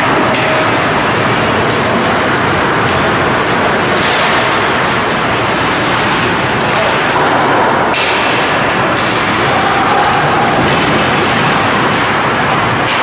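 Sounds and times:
ice rink noise: 0.0 - 13.0
sharp cracks of hockey play: 3.4 - 13.0.

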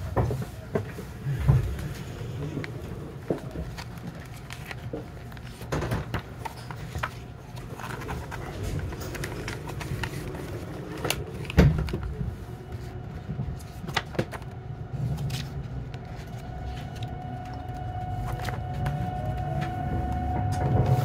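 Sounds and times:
train low rumble: 0.0 - 21.0
train knocks and clicks: 17.8 - 21.0.

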